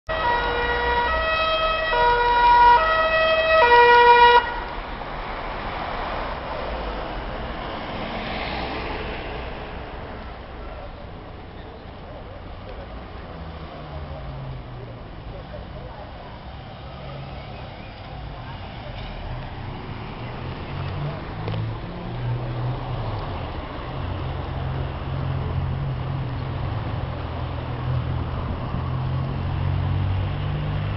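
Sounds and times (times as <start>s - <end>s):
two-tone emergency siren: 0.1s - 4.7s
passing road traffic: 0.1s - 30.9s
street noise: 0.1s - 30.9s.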